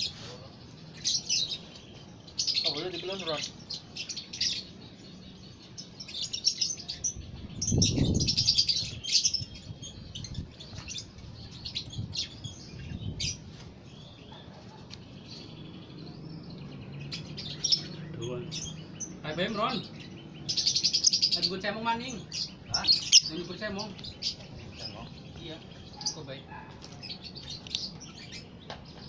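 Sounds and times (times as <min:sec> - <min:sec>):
lovebird twittering: 0:15.0 - 0:26.2.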